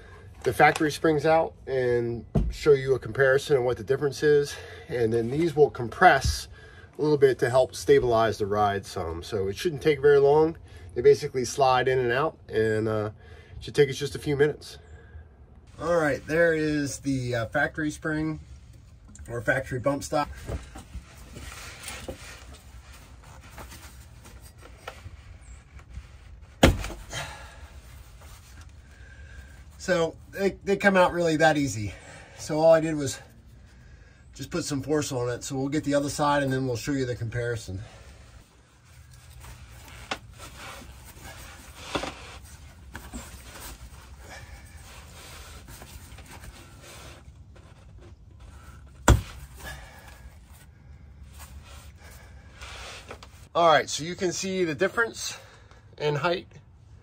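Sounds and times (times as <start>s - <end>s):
gloved hand rubbing on rubber: 38.4s - 47.5s, 51.3s - 53.5s.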